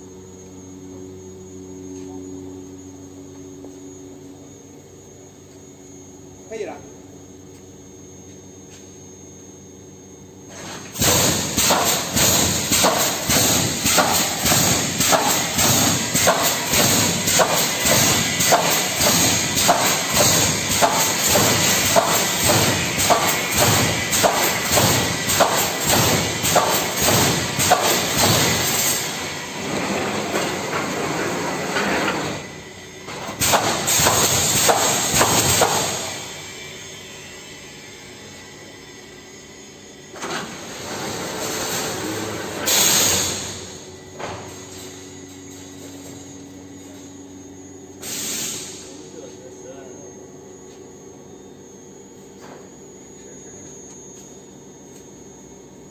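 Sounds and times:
welding machine clanking: 0:10.6 - 0:32.3, 0:33.1 - 0:36.3
compressed air hiss: 0:48.0 - 0:48.8.

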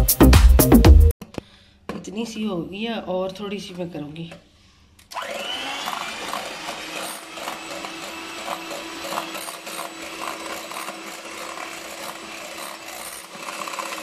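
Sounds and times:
hand mixer motor hum: 0:05.1 - 0:14.0.

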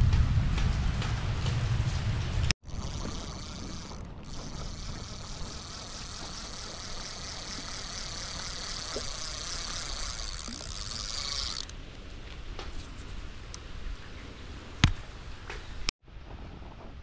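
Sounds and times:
high pulsing buzz: 0:02.6 - 0:11.7.

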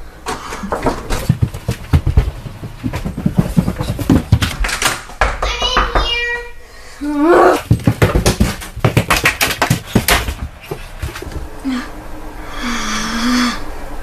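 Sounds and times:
child shouting: 0:05.4 - 0:06.6.

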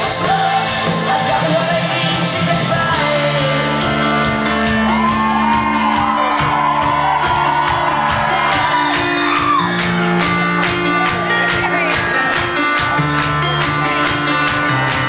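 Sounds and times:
woman singing: 0:00.0 - 0:04.1
bass notes: 0:00.0 - 0:15.0
live rock band playing: 0:00.0 - 0:15.0
drumbeat: 0:04.2 - 0:15.0.

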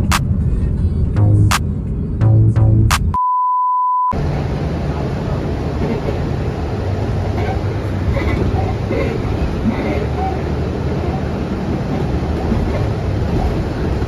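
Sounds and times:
background music with a beat: 0:00.0 - 0:00.2, 0:01.2 - 0:01.6, 0:02.2 - 0:03.2
low rumbling background noise: 0:00.0 - 0:03.0, 0:04.2 - 0:14.0
electronic beep: 0:03.1 - 0:04.2.

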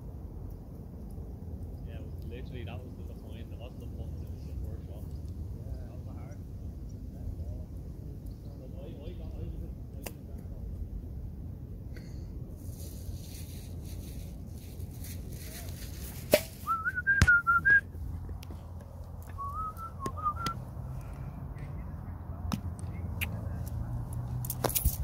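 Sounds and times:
steady low rumble: 0:00.0 - 0:25.0
person whistling: 0:16.6 - 0:17.8, 0:19.3 - 0:20.6.

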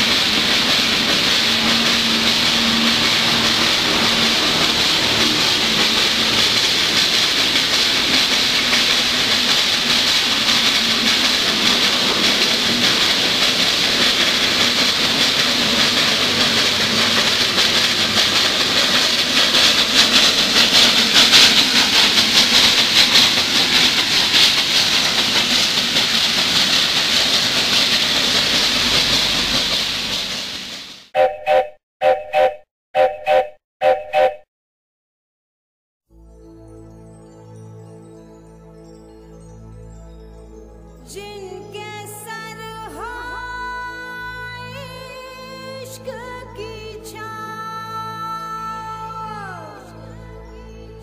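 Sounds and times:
steam locomotive hissing steam: 0:00.0 - 0:31.1.

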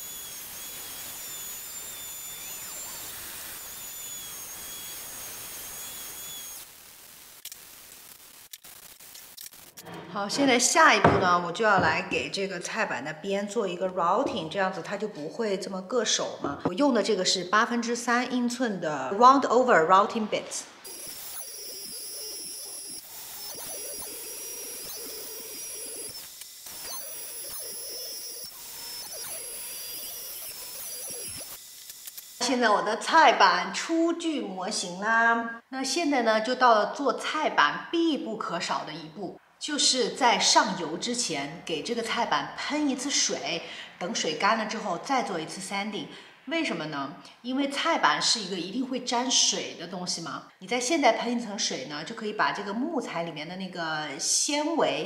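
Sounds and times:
router cutting wood: 0:00.0 - 0:06.7, 0:20.8 - 0:32.4
orbital sander whining: 0:00.0 - 0:07.2, 0:20.8 - 0:32.5
sanding disc hissing on wood: 0:00.0 - 0:07.3, 0:20.8 - 0:31.7.

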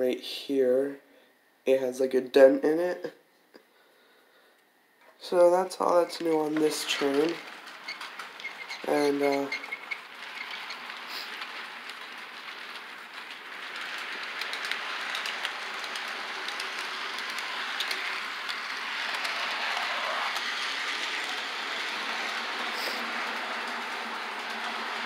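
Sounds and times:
model train wheels whirring: 0:05.3 - 0:25.0
clicking over rail joints: 0:06.2 - 0:25.0.

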